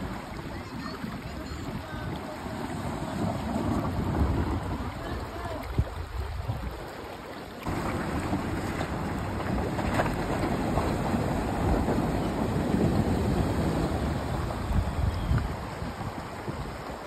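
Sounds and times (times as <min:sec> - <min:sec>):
wind buffeting microphone: 0:00.0 - 0:06.9, 0:07.6 - 0:17.0
water splashing around wheels: 0:00.0 - 0:17.0
vehicles driving on gravel: 0:07.6 - 0:15.9.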